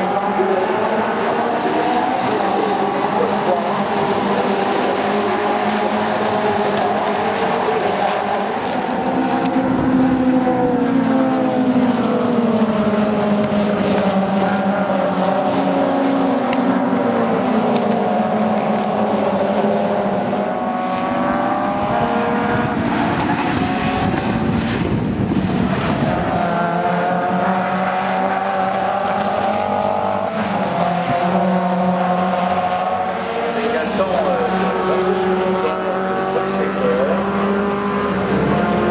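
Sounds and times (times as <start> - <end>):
race car engines revving: 0.0 - 38.9.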